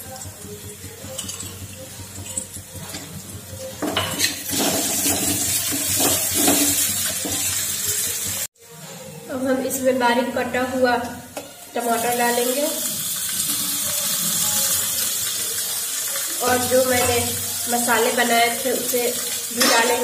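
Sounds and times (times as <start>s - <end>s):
light sizzling in hot oil: 0.0s - 8.5s, 11.5s - 20.0s
metal ladle scraping pan: 3.8s - 8.0s.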